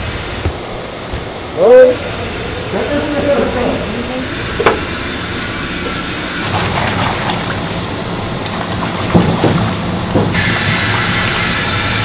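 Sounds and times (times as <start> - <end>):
factory machinery hum: 0.0 - 12.0
sharp knocks: 4.6 - 4.9, 9.1 - 10.4
oil pouring and splashing: 5.8 - 12.0.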